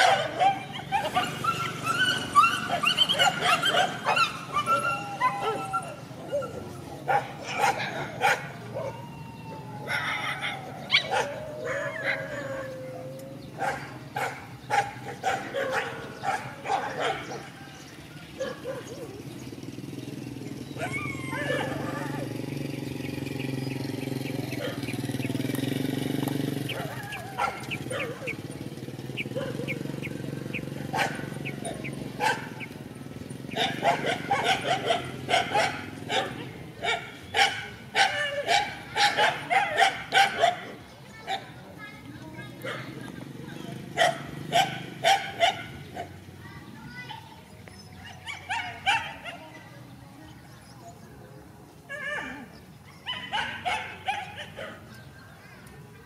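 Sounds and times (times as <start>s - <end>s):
dog yelps: 0.0s - 17.5s, 20.8s - 22.3s, 26.7s - 28.4s, 30.9s - 32.6s, 33.6s - 41.5s, 44.0s - 46.1s, 48.1s - 49.5s, 51.9s - 54.9s
dogs barking: 0.0s - 19.5s, 20.6s - 22.5s, 23.6s - 25.6s, 26.4s - 41.7s, 42.6s - 43.1s, 43.7s - 46.3s, 48.0s - 49.6s, 51.9s - 55.1s.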